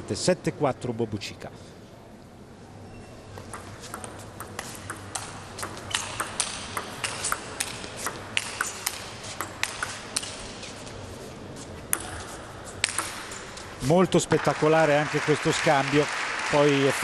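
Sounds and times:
table tennis ball clicking: 0:03.4 - 0:10.5, 0:12.8 - 0:13.4.

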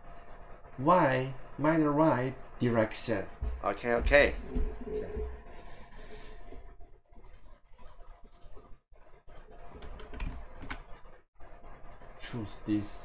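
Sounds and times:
computer mouse clicking: 0:07.2 - 0:08.6, 0:09.3 - 0:11.0, 0:11.8 - 0:12.1.

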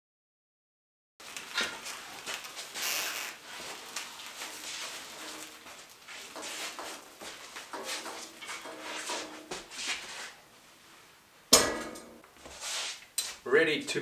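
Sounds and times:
steel parts clanking and scraping: 0:07.7 - 0:09.5.

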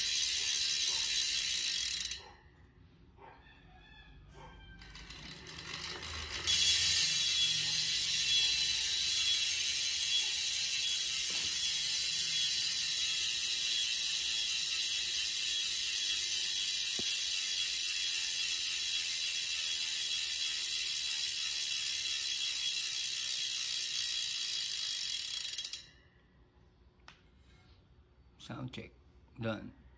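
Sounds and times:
bicycle hub freewheel buzzing: 0:00.0 - 0:02.3, 0:04.8 - 0:26.2.

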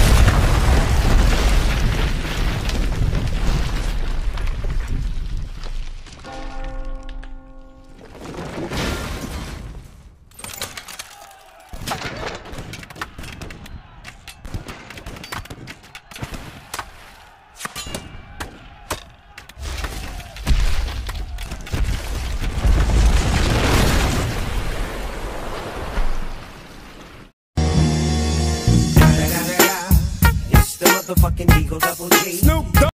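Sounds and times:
rock cracking and debris clattering: 0:00.0 - 0:13.0, 0:19.6 - 0:27.2.

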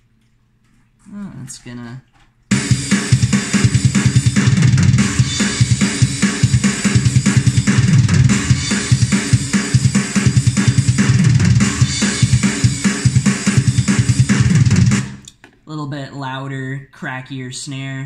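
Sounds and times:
cymbals washing: 0:02.5 - 0:15.3
rapid kick drum strikes: 0:02.5 - 0:15.3
loud crackly snare: 0:02.5 - 0:15.4.

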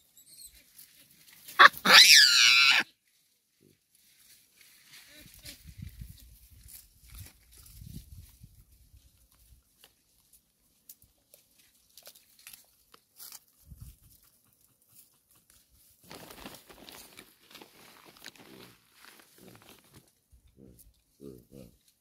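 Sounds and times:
rustling: 0:00.6 - 0:21.0
grass and leaves tearing: 0:04.0 - 0:13.9, 0:16.0 - 0:20.8.

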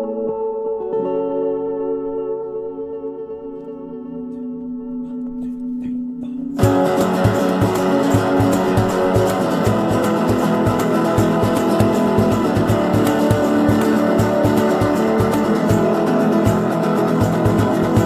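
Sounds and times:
held chord: 0:01.6 - 0:18.0
band playing with steady beat: 0:05.4 - 0:18.0.

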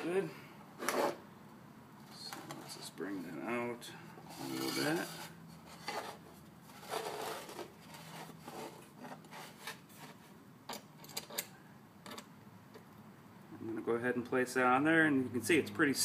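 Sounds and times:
metal plate sliding on wooden board: 0:00.8 - 0:01.2.

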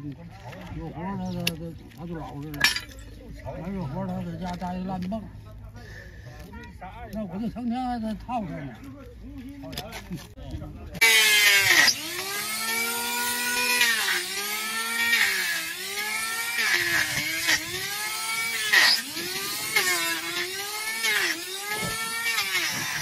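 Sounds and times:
electric planer whining: 0:11.0 - 0:23.0.

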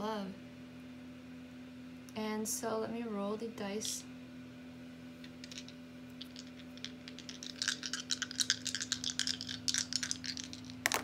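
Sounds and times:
dice rattling and clicking: 0:05.2 - 0:11.0.

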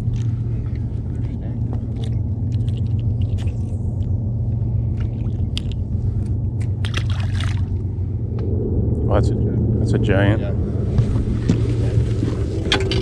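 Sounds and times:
small splash in water: 0:06.8 - 0:07.7.

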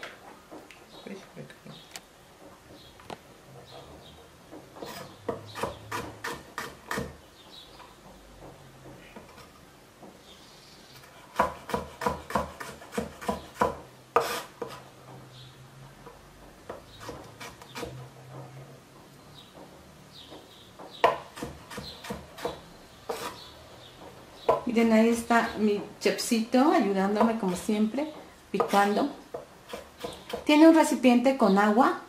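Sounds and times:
knife chopping on wooden board: 0:04.5 - 0:07.2, 0:11.2 - 0:14.8, 0:16.7 - 0:18.0, 0:20.3 - 0:23.4, 0:28.6 - 0:30.6.

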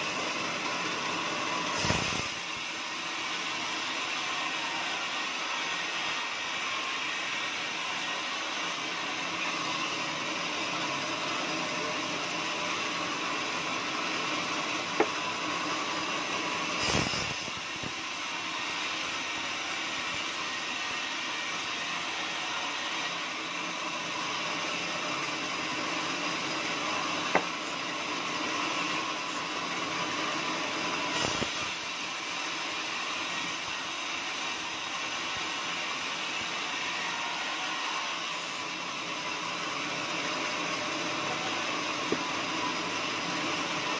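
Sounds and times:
band saw whirring: 0:00.0 - 0:43.9.

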